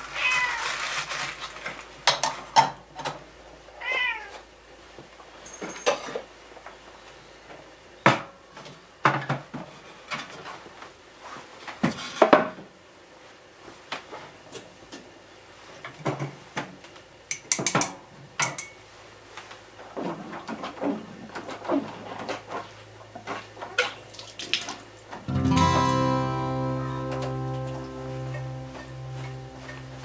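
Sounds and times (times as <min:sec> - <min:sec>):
background guitar music: 0:25.3 - 0:30.0.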